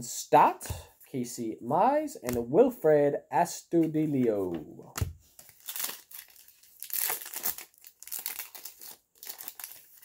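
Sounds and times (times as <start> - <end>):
foil wrapper crinkling and tearing: 5.4 - 10.0.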